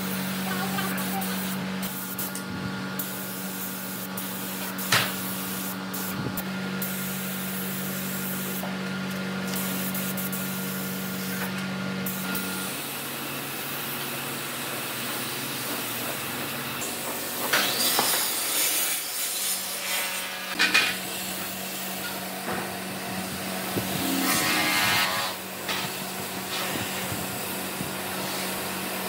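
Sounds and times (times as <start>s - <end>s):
motor hum: 0.0s - 29.0s
spray gun hissing: 0.4s - 2.3s, 3.0s - 8.6s, 9.5s - 11.4s.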